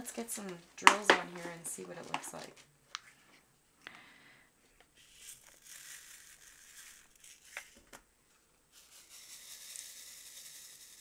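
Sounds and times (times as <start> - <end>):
rhinestones pouring into plastic tray: 5.1 - 7.6, 8.8 - 11.0
rhinestones rattling in shaken tray: 8.8 - 11.0.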